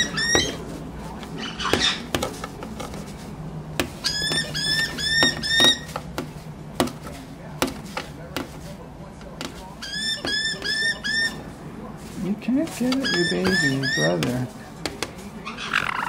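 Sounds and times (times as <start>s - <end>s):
parrot chirping: 0.0s - 0.7s, 1.3s - 2.1s, 4.0s - 6.0s, 9.8s - 11.5s, 12.8s - 14.2s, 15.4s - 16.0s.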